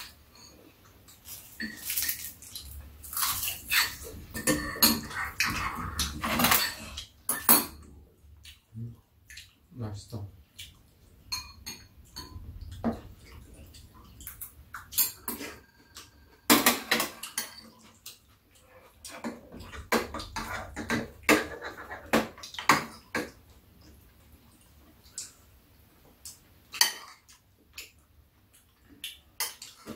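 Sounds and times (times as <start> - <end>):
metal utensils clinking on dishes: 0.0 - 2.3, 3.3 - 7.9, 11.3 - 13.0, 14.2 - 18.2, 29.4 - 29.9.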